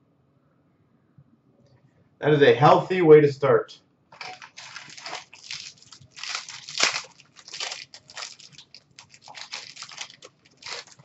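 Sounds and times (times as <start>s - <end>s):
foil wrapper crinkling: 4.2s - 11.0s.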